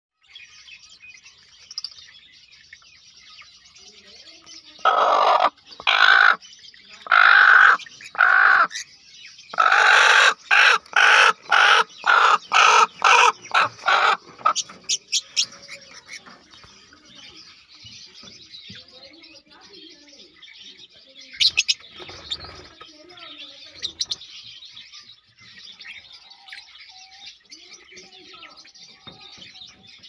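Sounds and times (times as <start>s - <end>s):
hen harsh protest calls: 7.0s - 8.7s, 9.6s - 14.6s.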